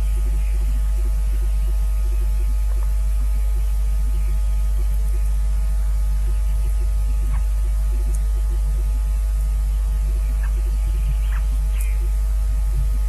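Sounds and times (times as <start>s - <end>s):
flickering low buzz: 0.0s - 13.0s
loud electrical hum: 0.0s - 13.0s.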